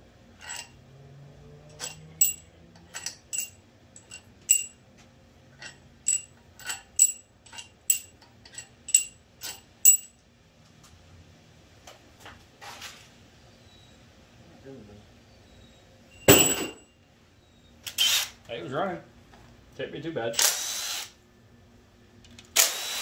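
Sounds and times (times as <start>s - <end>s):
metal parts clinking: 0.4s - 0.7s, 1.7s - 4.8s, 5.6s - 10.1s.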